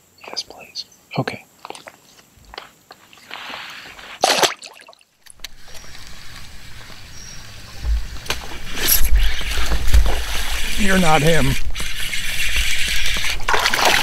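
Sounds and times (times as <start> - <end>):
water lapping against kayak: 2.6 - 14.0
fish splashing into water: 4.2 - 5.0, 13.3 - 14.0.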